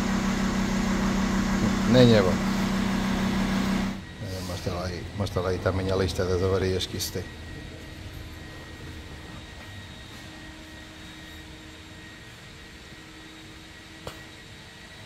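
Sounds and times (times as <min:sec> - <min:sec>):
low workshop hum: 0:00.0 - 0:15.0
faint constant tones: 0:04.0 - 0:15.0.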